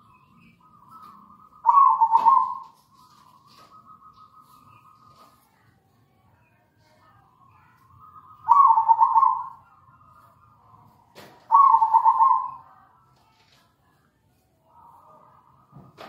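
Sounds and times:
dove cooing: 0:00.9 - 0:05.4, 0:08.0 - 0:09.8, 0:11.5 - 0:12.7.

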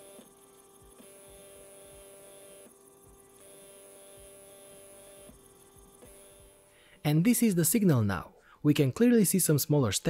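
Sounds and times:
stepper motor humming: 0:00.0 - 0:07.0.

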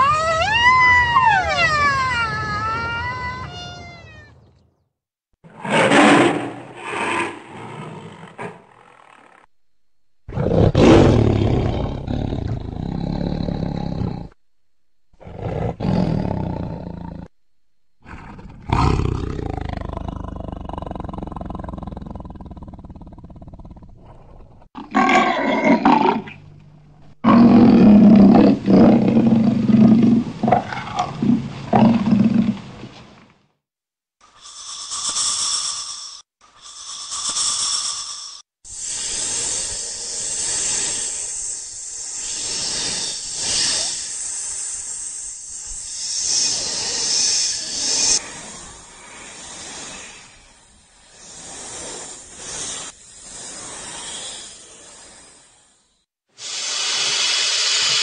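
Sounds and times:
tiger roaring: 0:10.3 - 0:14.4, 0:15.1 - 0:17.3, 0:18.0 - 0:26.4, 0:27.2 - 0:32.6
snake hissing: 0:18.0 - 0:23.0, 0:34.2 - 0:58.0.

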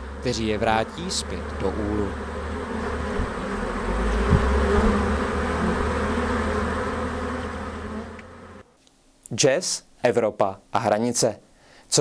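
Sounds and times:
bees buzzing: 0:00.0 - 0:08.8.

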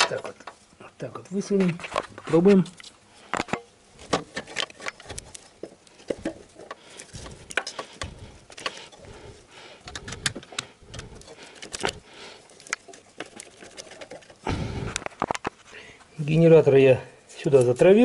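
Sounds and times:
metallic clicks knocks and scrapes: 0:09.8 - 0:12.0.

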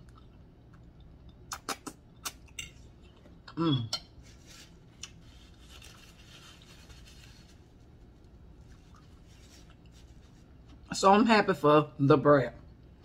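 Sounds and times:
paper napkin rustling: 0:04.2 - 0:10.8.

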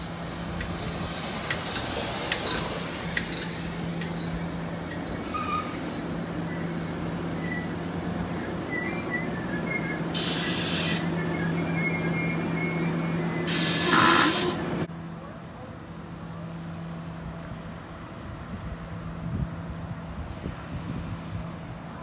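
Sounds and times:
compressed air hissing: 0:00.0 - 0:06.2, 0:10.1 - 0:11.2, 0:13.5 - 0:14.9
train low hum: 0:00.0 - 0:22.0.

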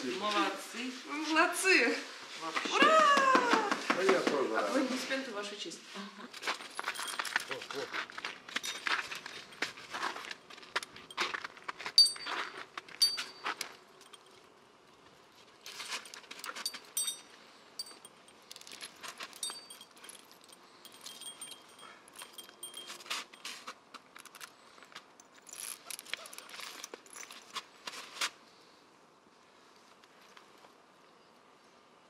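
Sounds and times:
harness fittings jingling: 0:06.6 - 0:07.9, 0:11.0 - 0:14.5, 0:15.7 - 0:24.5, 0:25.2 - 0:27.6
small bell ringing: 0:12.0 - 0:12.4, 0:13.0 - 0:14.3, 0:16.7 - 0:18.4, 0:19.4 - 0:23.6.

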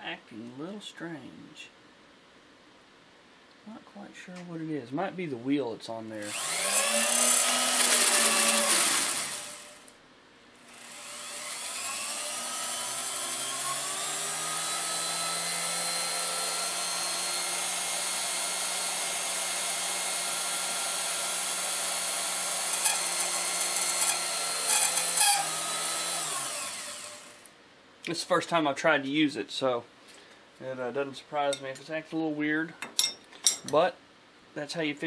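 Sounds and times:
grinder whining: 0:06.2 - 0:09.9, 0:10.6 - 0:27.5.

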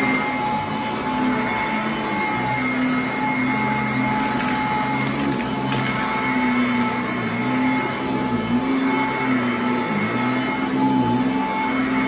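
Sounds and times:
vacuum cleaner running: 0:00.0 - 0:12.0.

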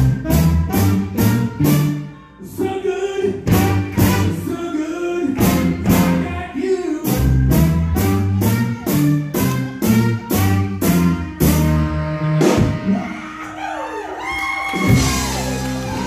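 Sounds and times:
trumpet: 0:00.0 - 0:02.4, 0:03.4 - 0:06.4, 0:07.6 - 0:13.1
bass: 0:00.0 - 0:16.0
saxophone: 0:07.7 - 0:13.1.

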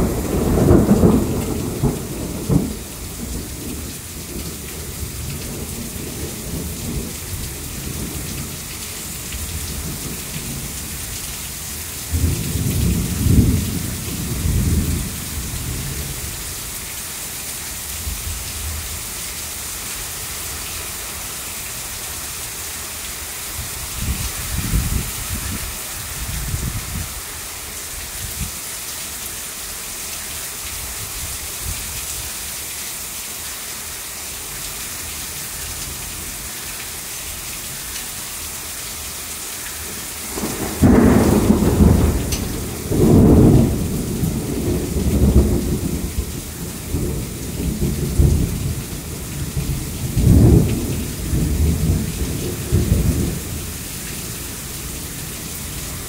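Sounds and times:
thunder rumbling: 0:00.0 - 0:08.5, 0:12.1 - 0:16.3, 0:40.3 - 0:55.8
heavy rain falling: 0:00.0 - 0:56.0.

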